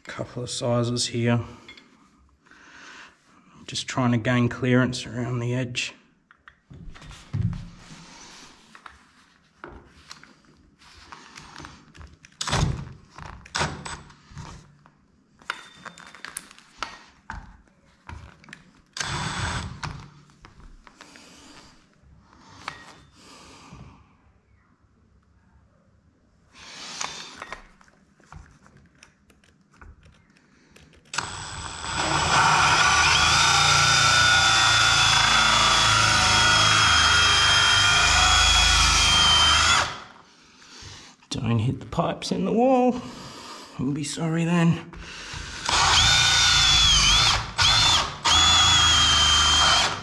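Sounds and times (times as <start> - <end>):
drill with hole saw drilling: 19.0 - 20.0, 26.6 - 27.5, 31.2 - 40.1, 45.4 - 50.0.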